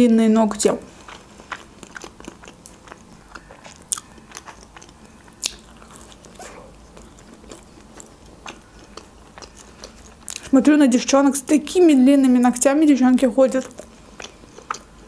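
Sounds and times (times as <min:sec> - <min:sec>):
person biting and chewing food: 0:01.0 - 0:10.5, 0:13.7 - 0:15.0.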